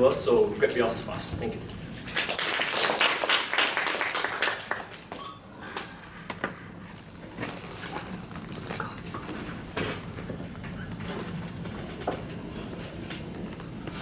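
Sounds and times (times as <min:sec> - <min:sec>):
faint room hum: 0:00.0 - 0:14.0
audience clapping: 0:02.0 - 0:05.2.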